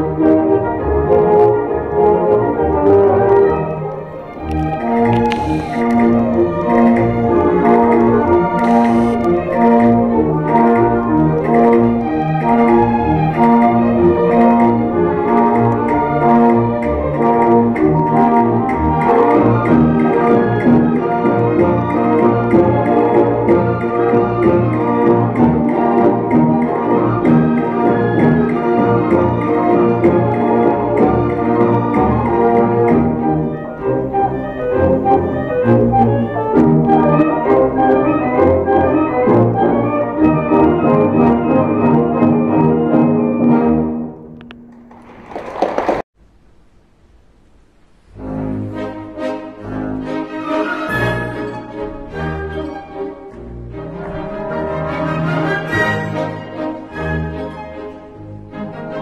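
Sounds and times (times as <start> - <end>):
orchestral ballet music: 0.0 - 46.0, 48.1 - 59.0.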